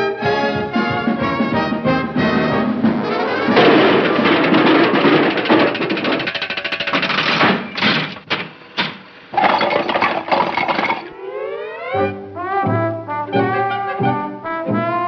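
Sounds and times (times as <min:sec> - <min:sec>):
loud rattling and clattering: 0:02.8 - 0:11.1.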